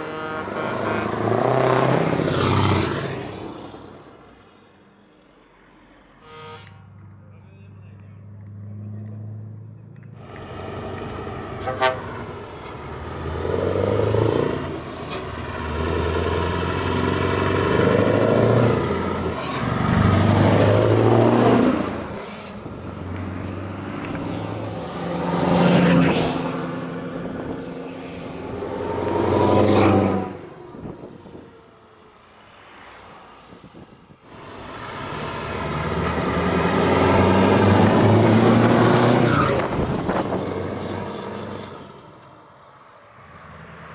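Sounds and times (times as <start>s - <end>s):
air horns: 0.0s - 1.4s, 6.1s - 6.9s, 11.6s - 12.4s
heavy trucks driving past: 0.0s - 43.9s.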